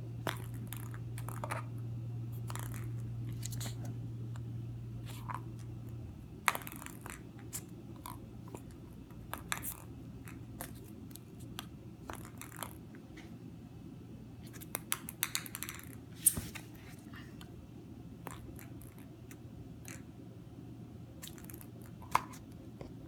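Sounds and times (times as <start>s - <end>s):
ping pong ball clicking and bouncing: 14.8s - 16.0s.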